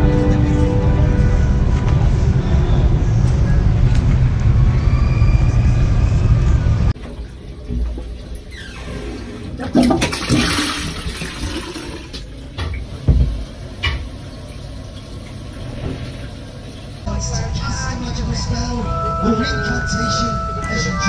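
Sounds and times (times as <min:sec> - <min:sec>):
loud low rumble: 0:00.0 - 0:07.0, 0:17.1 - 0:20.9
toilet flushing: 0:06.9 - 0:17.1.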